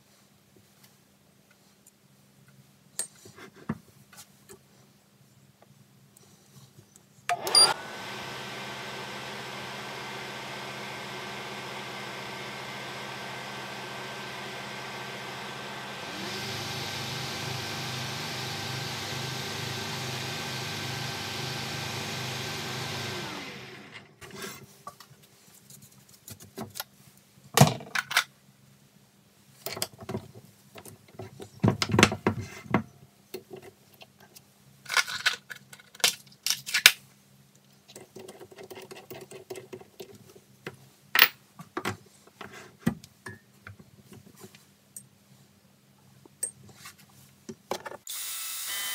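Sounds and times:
metal lathe motor running: 7.6 - 24.0.

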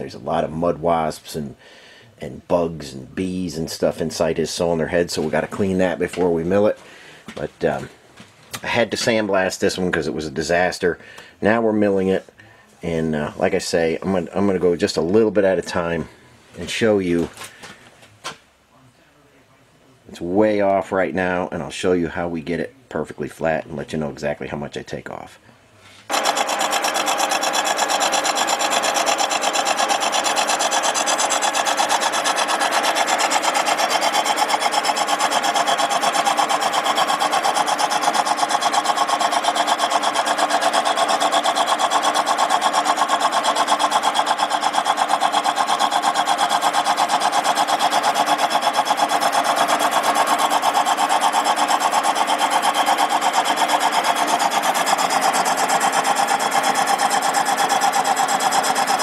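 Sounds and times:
milling machine cutting metal: 26.1 - 59.0.

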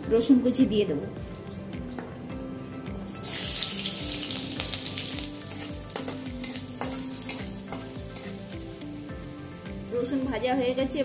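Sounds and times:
garlic sizzling in hot oil: 3.0 - 11.0
spatula clicking against pan: 6.0 - 8.4.

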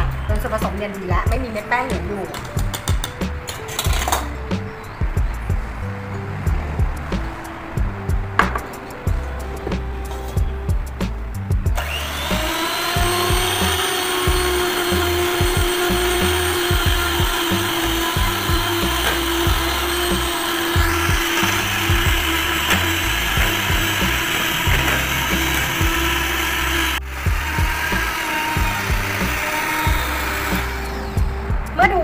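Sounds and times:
electric hand mixer whining: 11.8 - 31.4.

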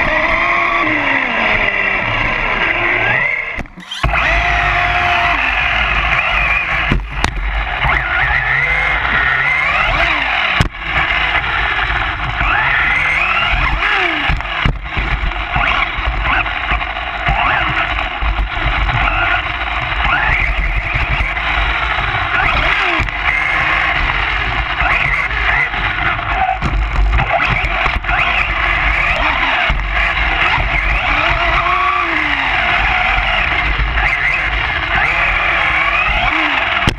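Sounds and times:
rc truck electric motors whining: 0.0 - 36.9
low rumble: 3.7 - 12.4.

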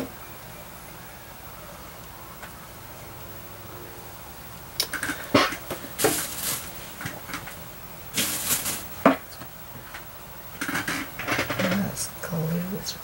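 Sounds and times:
paper rustling and clicks: 4.8 - 7.6.

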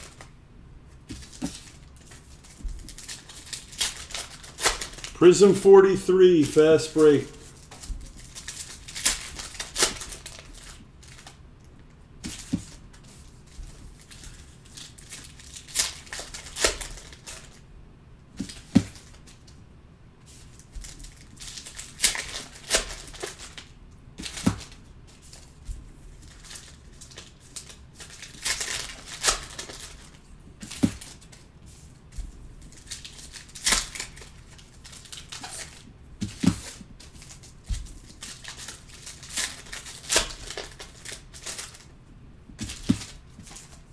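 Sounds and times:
cards being handled: 1.0 - 11.4
foil wrappers tearing and crinkling: 1.1 - 5.2, 7.0 - 11.4, 14.0 - 17.6, 20.4 - 25.6, 26.2 - 31.4, 32.6 - 41.9.

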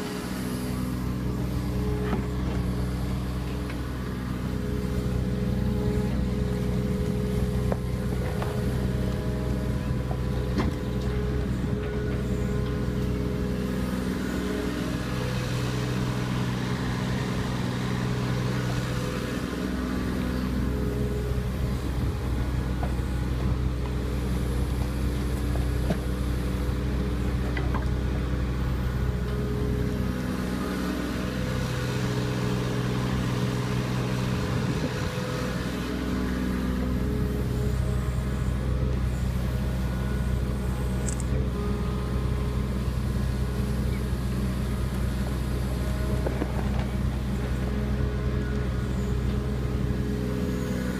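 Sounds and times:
excavator diesel engine running: 0.0 - 50.9.

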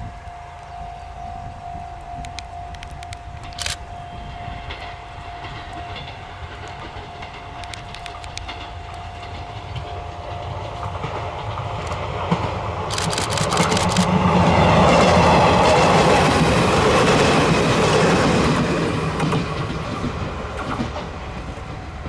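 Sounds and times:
electric train passing: 0.0 - 22.0
wheel clicks over rail joints: 4.6 - 14.2, 14.8 - 21.6.

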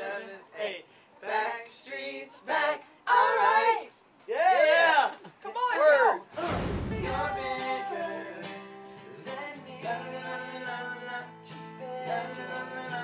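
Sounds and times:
male vocal group singing harmony: 0.0 - 3.9, 6.4 - 13.0
strummed acoustic guitar: 6.4 - 13.0.

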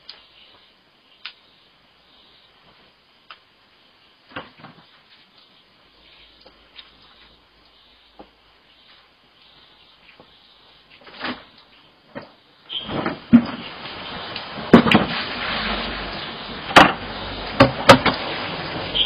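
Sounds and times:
water splashing and pouring: 12.8 - 19.0
plastic buckets knocking: 16.6 - 18.3.

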